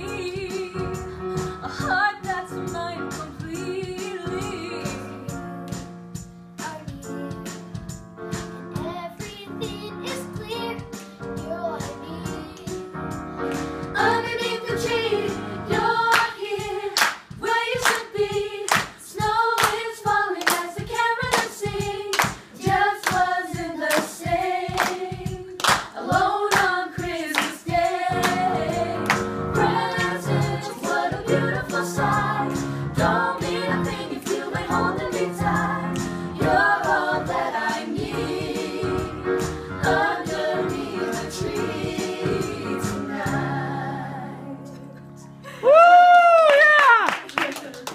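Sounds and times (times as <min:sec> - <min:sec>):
women and children singing: 0:00.0 - 0:01.0, 0:01.6 - 0:05.3, 0:14.0 - 0:39.2, 0:39.8 - 0:44.6
hands clapping: 0:05.6 - 0:05.9, 0:13.5 - 0:13.8, 0:16.1 - 0:16.4, 0:17.0 - 0:18.1, 0:18.7 - 0:29.3, 0:35.9 - 0:36.2, 0:46.4 - 0:47.9.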